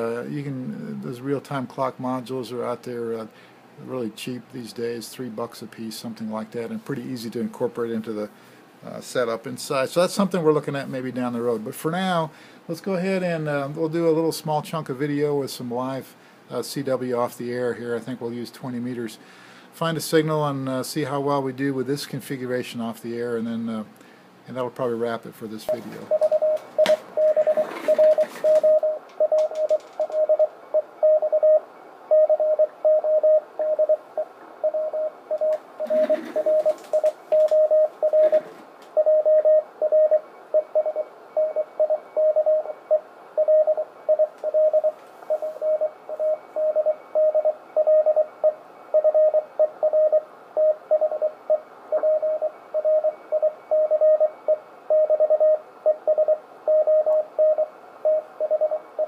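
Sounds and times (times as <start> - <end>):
faint radio hiss: 0.0 - 59.0
static crackles: 19.8 - 59.0
morse code tone: 25.7 - 59.0.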